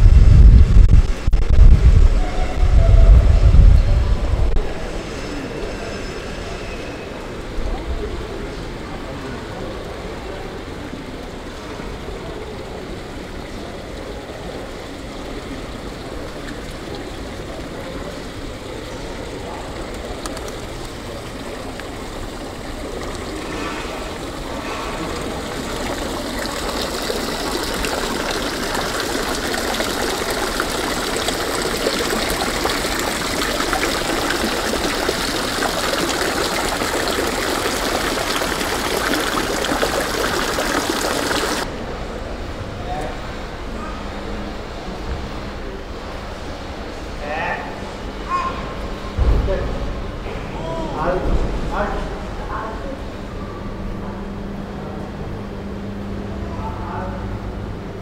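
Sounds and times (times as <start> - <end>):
running water splashing: 9.9 - 41.7.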